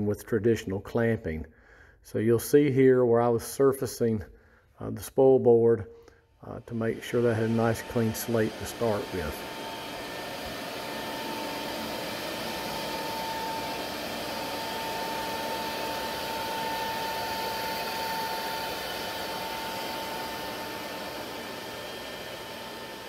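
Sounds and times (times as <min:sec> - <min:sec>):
cnc router spindle whine: 0:06.8 - 0:23.0.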